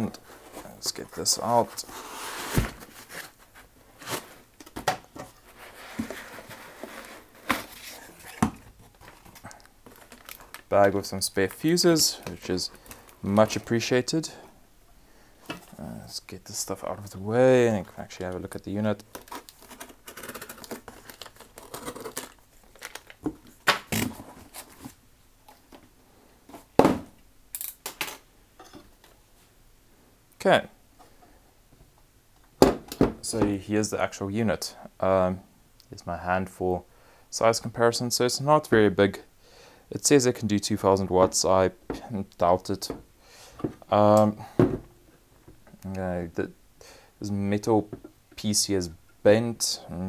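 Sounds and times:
foam and cardboard rustling: 0.2 - 4.5, 5.2 - 10.6
cardboard box thumps and scrapes: 2.0 - 3.3
plastic packing crinkling: 6.2 - 13.3, 19.0 - 24.9.

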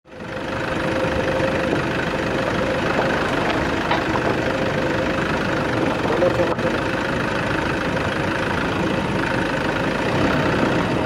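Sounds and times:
vehicle engine running: 0.1 - 11.0
vehicle knocks and rattles: 1.6 - 7.7.

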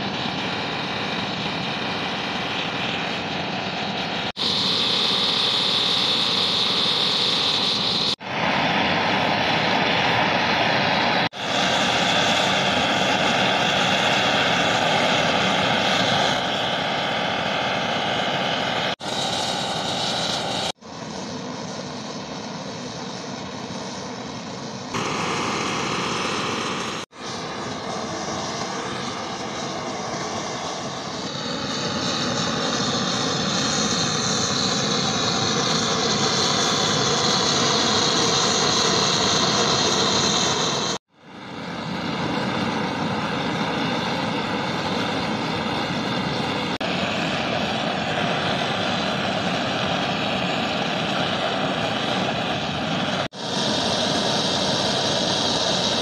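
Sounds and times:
blowtorch hissing: 0.0 - 56.0.

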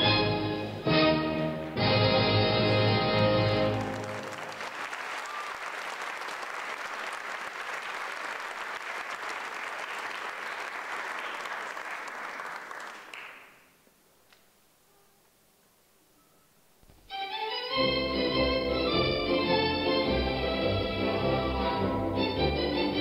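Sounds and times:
audience applauding: 2.7 - 13.8.

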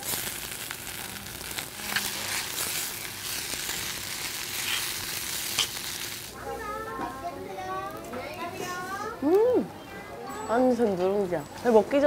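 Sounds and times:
food sizzling in stone bowl: 0.0 - 7.0
metal spoon scraping stone: 4.6 - 5.7.

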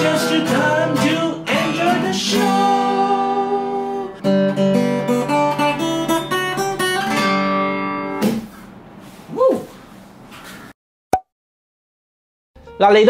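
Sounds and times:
acoustic guitar strumming: 0.0 - 8.5.

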